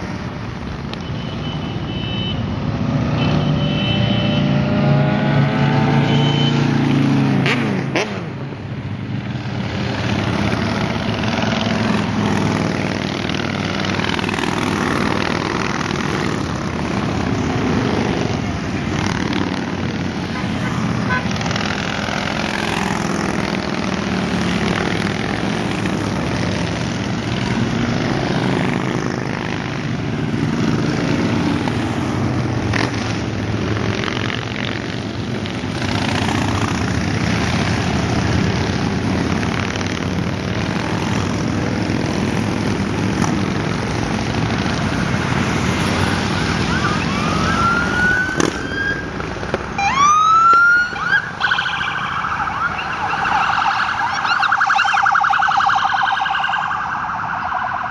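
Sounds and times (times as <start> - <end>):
motorcycles riding past: 2.4 - 57.9
police siren whooping: 46.2 - 49.2, 49.8 - 57.9.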